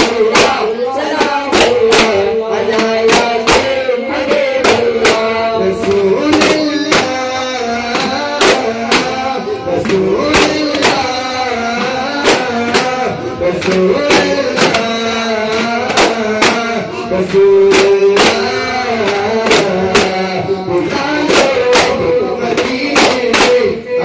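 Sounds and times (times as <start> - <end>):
frame drums struck: 0.0 - 16.8, 17.6 - 23.7
men singing devotional song: 0.0 - 24.0.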